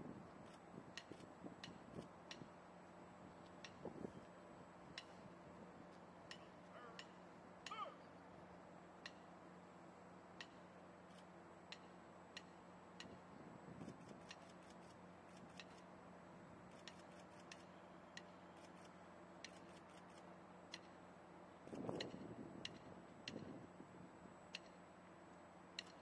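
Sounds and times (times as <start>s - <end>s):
drumstick taps: 6.3s - 7.8s.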